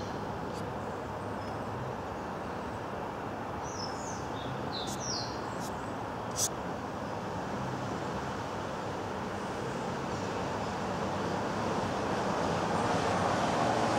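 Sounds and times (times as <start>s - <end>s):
street traffic hum: 0.0s - 13.9s
bird chirps: 3.7s - 5.4s.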